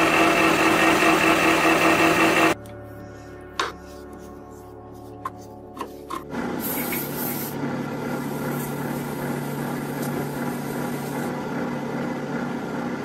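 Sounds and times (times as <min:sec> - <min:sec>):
metal lathe humming: 0:00.0 - 0:02.6, 0:06.4 - 0:13.0
aerosol spray hiss: 0:06.6 - 0:07.6, 0:08.2 - 0:11.3.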